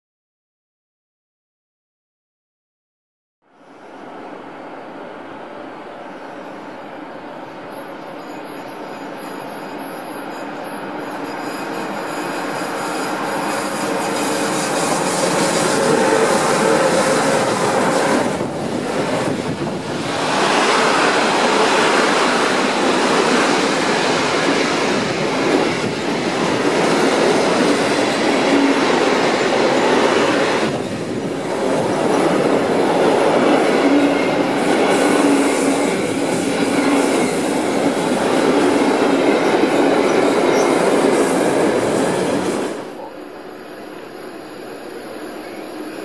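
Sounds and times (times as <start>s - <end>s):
train wheels rushing on rail: 3.7s - 46.0s
faint wheel squeal: 7.7s - 15.1s.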